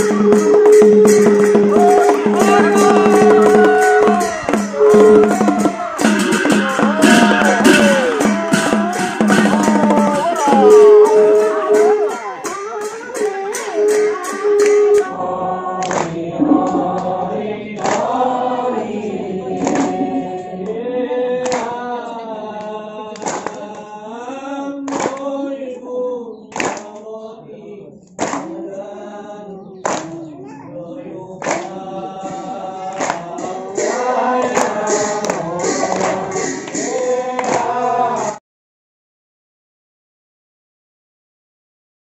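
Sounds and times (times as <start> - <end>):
fast percussion: 0.0 - 20.6, 31.4 - 38.4
sharp percussion strokes: 0.0 - 20.6, 32.1 - 38.4
group singing a chant: 0.0 - 38.4.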